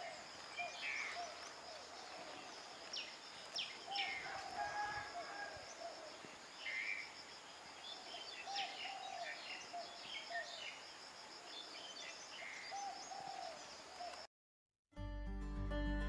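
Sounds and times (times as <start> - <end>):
birds chirping: 11.6 - 14.2.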